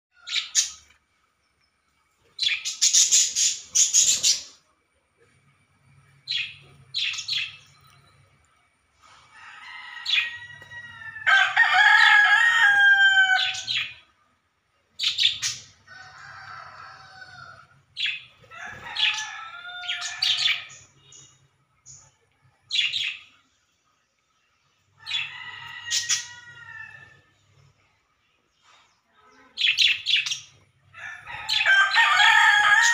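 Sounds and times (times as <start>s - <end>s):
parrots chirping: 0.2s - 0.9s, 2.3s - 4.6s, 6.1s - 8.3s, 15.0s - 18.3s
rooster crowing: 9.3s - 13.8s, 15.9s - 17.7s, 18.5s - 20.8s, 25.0s - 27.2s, 31.0s - 32.9s.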